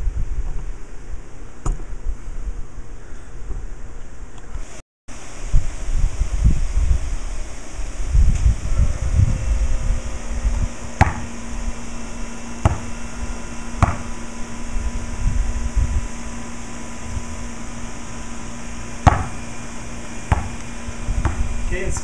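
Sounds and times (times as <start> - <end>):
wind rumble on microphone: 0.0 - 4.0, 5.2 - 17.6, 20.3 - 22.0
steady low hum: 0.0 - 22.0
basketball bouncing: 11.0 - 11.3, 12.6 - 12.9, 13.8 - 14.1, 19.0 - 19.4, 20.3 - 20.6, 21.2 - 21.5.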